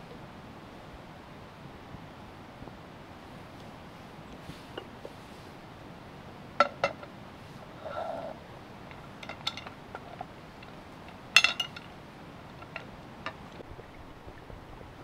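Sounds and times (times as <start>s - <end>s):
metal pot lid clinking: 11.4s - 11.9s.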